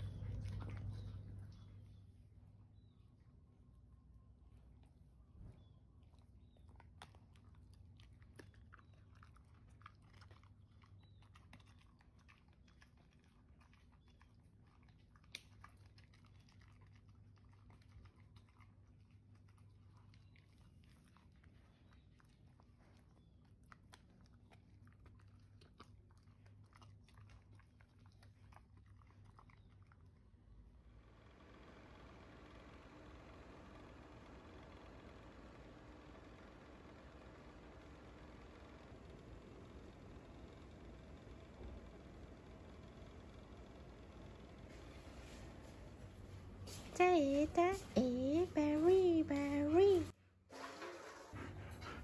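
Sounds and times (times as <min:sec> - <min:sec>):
dog chewing a stick: 0:00.0 - 0:01.9, 0:05.6 - 0:30.4.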